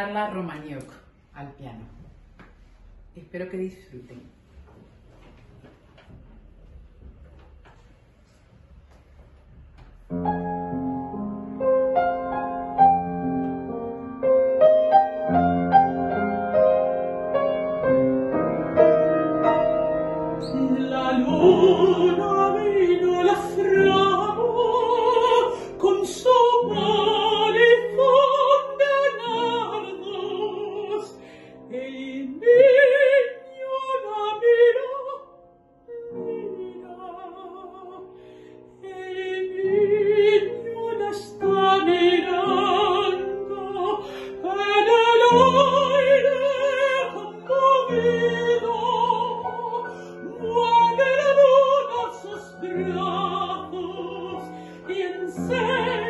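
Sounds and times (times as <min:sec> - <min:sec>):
piano accompaniment: 0:09.3 - 0:56.0
woman singing operatically: 0:20.4 - 0:35.2, 0:36.0 - 0:38.0, 0:38.8 - 0:56.0.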